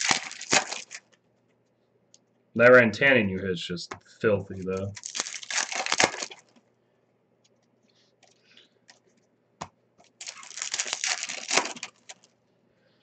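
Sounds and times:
wrapper rustling and tearing: 0.0 - 1.2, 4.7 - 6.6, 10.0 - 12.4.

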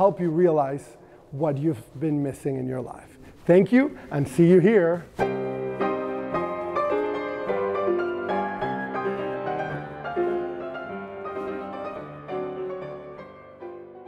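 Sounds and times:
piano music: 5.1 - 14.0.

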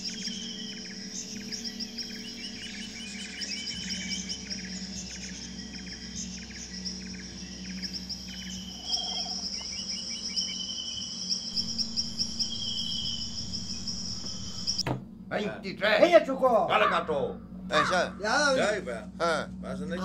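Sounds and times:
bird chirps: 0.0 - 14.8
insects trilling: 0.0 - 20.0
low steady hum: 0.0 - 20.0.

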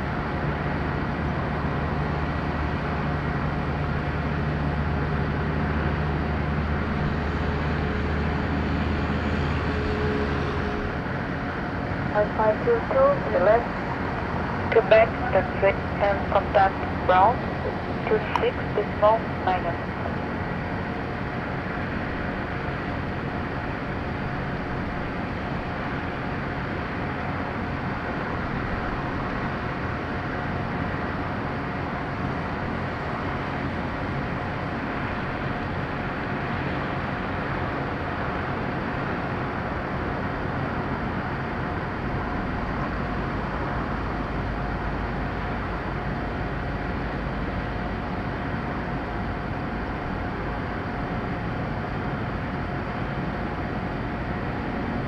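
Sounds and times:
jet airliner taxiing: 0.0 - 55.0
jet engine whine: 0.0 - 55.0.

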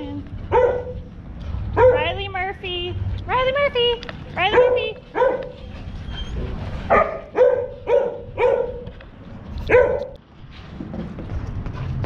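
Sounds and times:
dog barking: 0.5 - 1.0, 1.8 - 2.1, 4.5 - 5.6, 6.9 - 8.9, 9.7 - 10.2.

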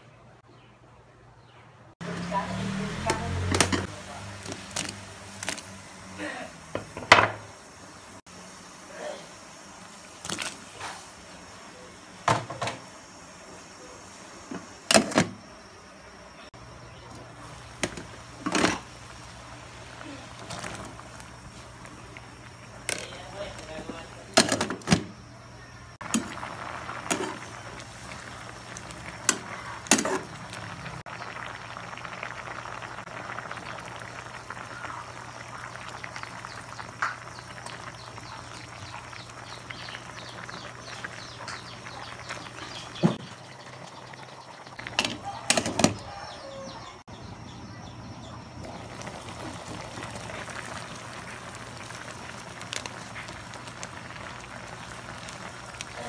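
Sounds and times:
soup boiling in a pot: 2.1 - 47.5, 48.1 - 56.0
lid and utensils clanking on pot: 44.9 - 46.0.

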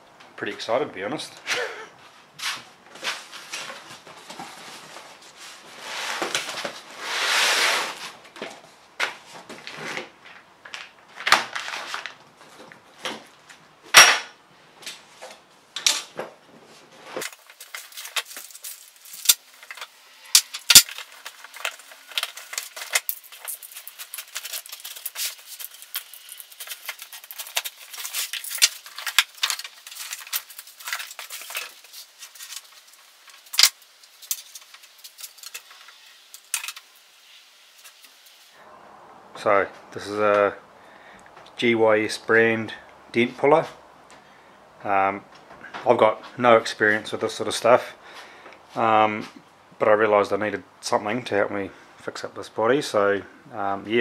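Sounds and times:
cardboard and packing rustling: 2.0 - 13.6, 16.2 - 37.1
metal parts clicking and clinking: 17.2 - 37.1.

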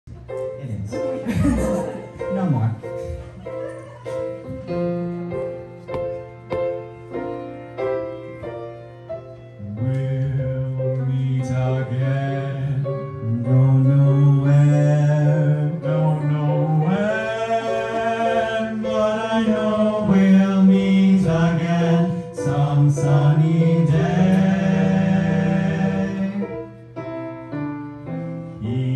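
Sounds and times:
man singing with vibrato: 9.6 - 26.8, 28.4 - 28.9.

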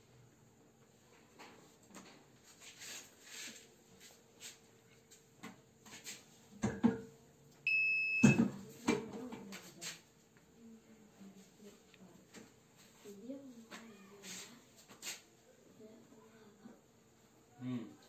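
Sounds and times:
electronic beep: 7.7 - 8.4.

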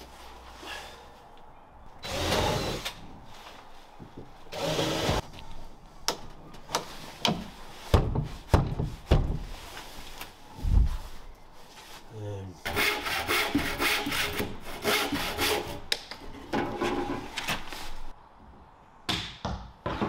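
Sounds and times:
wooden knocks and thuds: 7.2 - 9.5, 19.1 - 20.0.

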